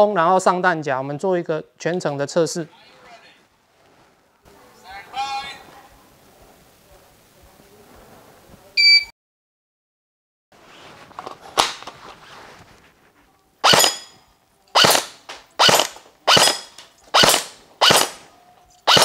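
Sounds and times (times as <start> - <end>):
airsoft rifle single shots: 13.6 - 14.2, 14.8 - 18.2.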